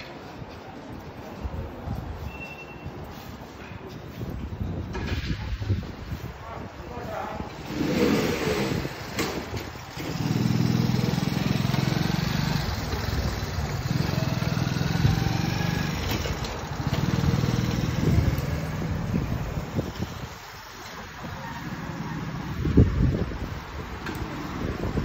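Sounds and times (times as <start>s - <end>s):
small motorcycle engine running: 9.9s - 19.4s.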